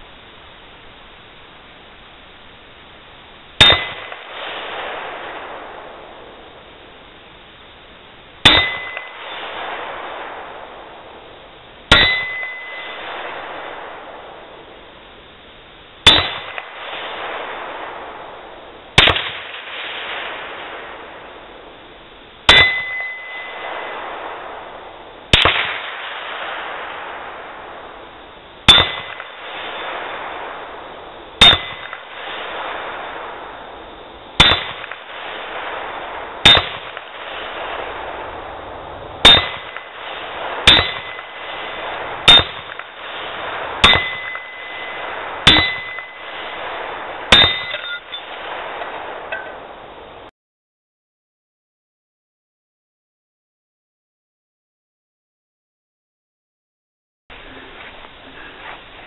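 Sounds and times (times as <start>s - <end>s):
steel plate ringing: 3.6s - 4.2s, 8.4s - 9.5s, 11.9s - 13.1s, 16.0s - 16.6s, 22.5s - 23.9s, 28.7s - 30.0s, 31.4s - 32.1s, 34.4s - 34.9s, 36.4s - 36.9s, 39.2s - 39.9s, 40.6s - 41.4s, 42.2s - 42.8s, 43.8s - 46.5s, 47.3s - 48.4s
rifle shots cracking: 3.6s - 6.2s, 8.4s - 10.9s, 11.9s - 14.2s, 16.0s - 18.4s, 19.0s - 21.0s, 22.5s - 27.7s, 28.7s - 30.8s, 31.4s - 33.4s, 34.4s - 38.4s, 39.2s - 49.7s.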